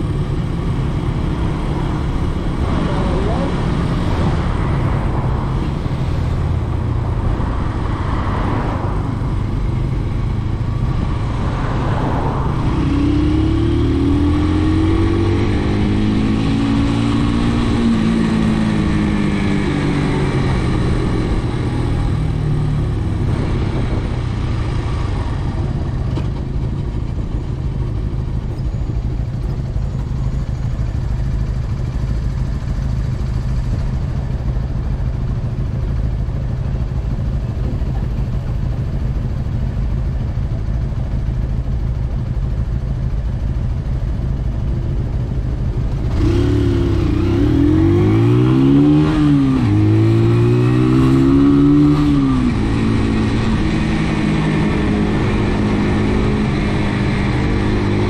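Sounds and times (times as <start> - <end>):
steady rushing noise: 0.0 - 39.6
motorcycle engine running: 0.0 - 58.0.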